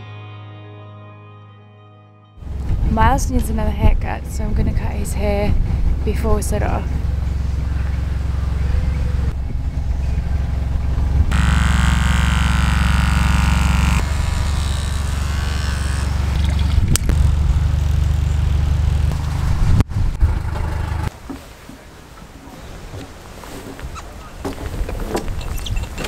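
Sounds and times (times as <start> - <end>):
electric hair clippers buzzing: 11.3 - 19.1.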